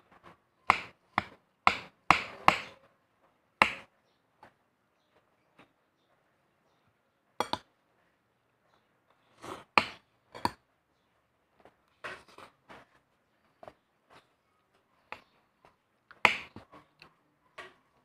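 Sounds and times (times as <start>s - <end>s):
cutlery clinking on plate: 7.4s - 7.7s.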